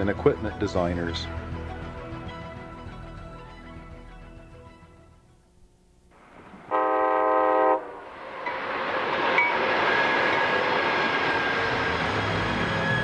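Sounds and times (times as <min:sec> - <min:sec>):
passenger train rushing past: 0:06.2 - 0:13.0
locomotive air horn: 0:06.7 - 0:08.1.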